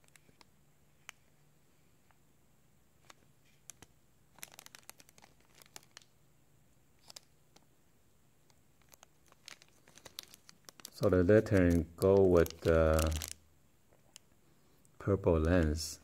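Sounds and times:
plastic bag crinkling: 3.0s - 6.1s, 7.0s - 7.6s, 8.8s - 13.4s.

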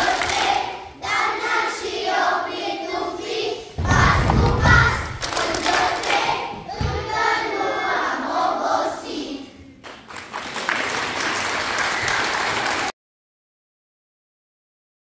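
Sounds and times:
children's choir singing: 0.0s - 9.8s
audience applause: 9.9s - 12.9s.

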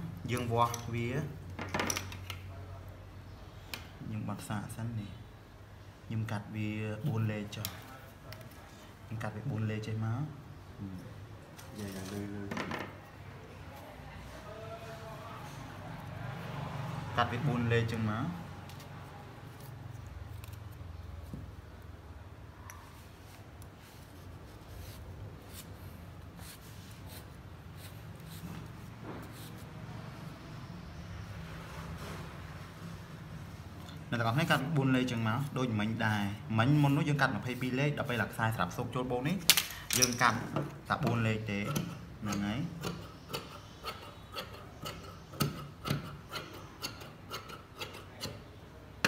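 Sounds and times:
chalk scratching on fabric: 23.3s - 30.0s.

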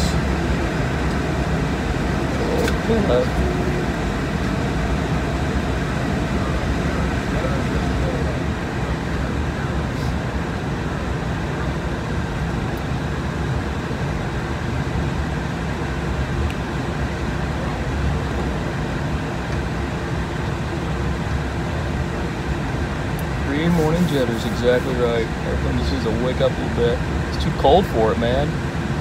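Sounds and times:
jet engines taxiing hum: 0.0s - 29.0s.

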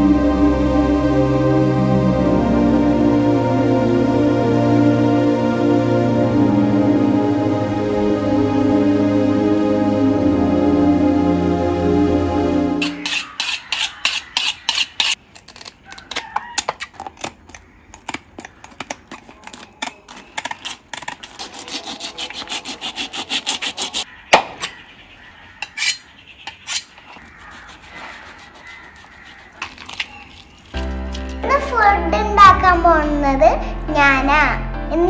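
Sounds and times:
knife scraping fish: 12.8s - 24.0s, 25.6s - 30.8s.

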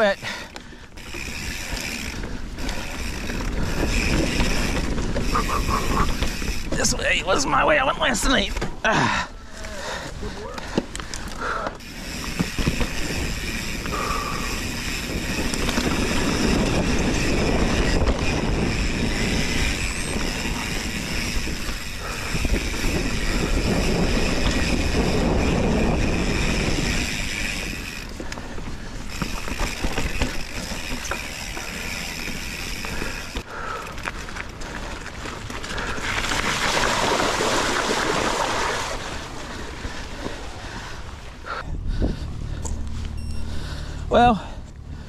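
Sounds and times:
bike tyres and frame rattling: 0.0s - 45.0s
wind on microphone: 12.3s - 32.2s, 41.4s - 43.6s.

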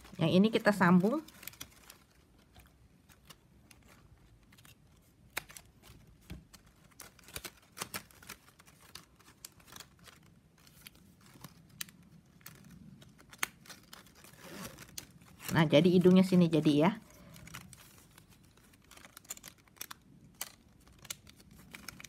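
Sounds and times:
plastic strapping clicks and scrapes: 1.2s - 15.6s.

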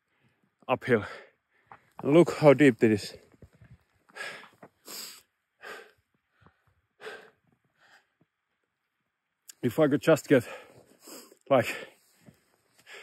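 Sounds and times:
man breathing hard: 4.0s - 8.2s, 10.4s - 13.0s.

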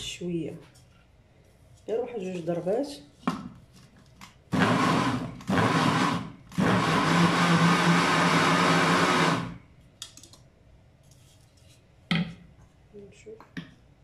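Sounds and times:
electric food chopper motor: 4.5s - 9.6s.

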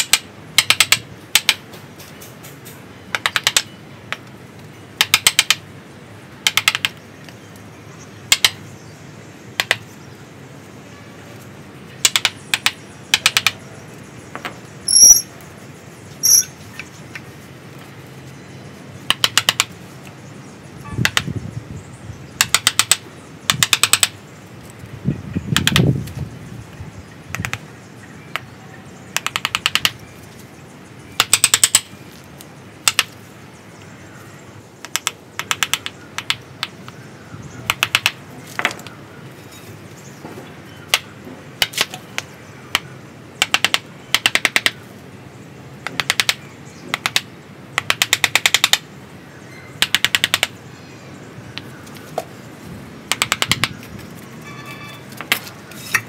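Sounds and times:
high bird chirps: 14.8s - 15.4s, 16.1s - 17.0s.

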